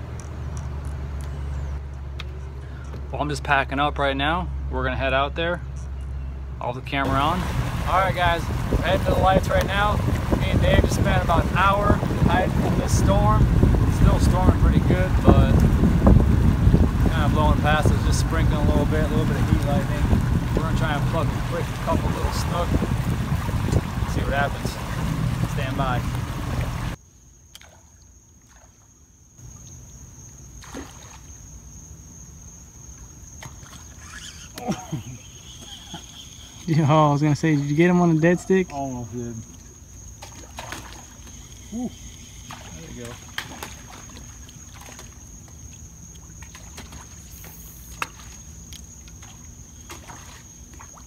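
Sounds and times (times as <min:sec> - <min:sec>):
low boat rumble: 0:00.0 - 0:27.0, 0:29.4 - 0:51.0
water lapping: 0:07.1 - 0:27.0, 0:33.2 - 0:51.0.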